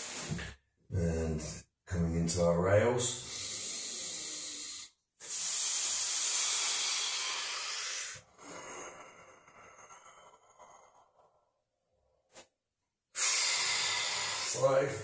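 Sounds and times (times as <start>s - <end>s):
man hissing breath through mouth: 3.2s - 10.9s, 13.1s - 14.8s
man breathing quietly: 3.2s - 12.5s, 13.1s - 14.8s.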